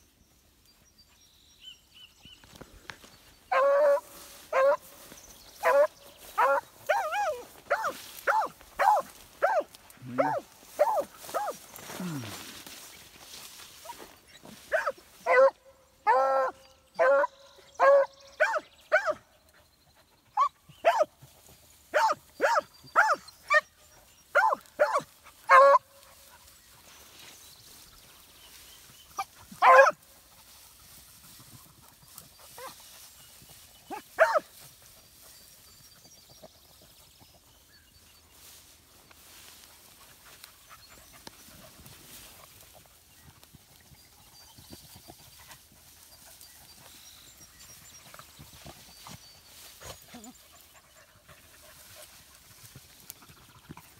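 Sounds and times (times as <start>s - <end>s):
beagles baying: 3.5s - 4.9s, 5.6s - 12.0s, 24.3s - 26.0s, 29.2s - 30.0s.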